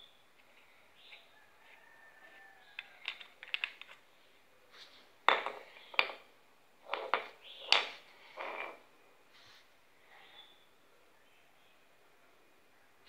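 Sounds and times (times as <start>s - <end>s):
metal parts clinking on concrete: 2.7s - 4.0s, 5.3s - 6.2s, 6.8s - 8.8s.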